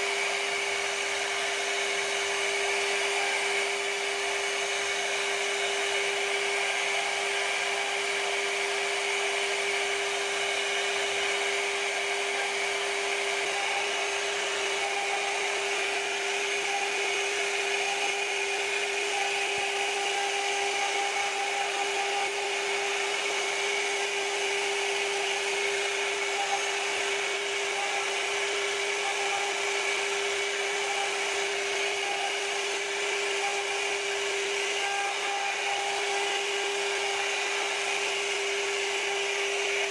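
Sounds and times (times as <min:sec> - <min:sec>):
cutter rasping through wood: 0:00.0 - 0:39.9
router spindle whine: 0:00.0 - 0:39.9.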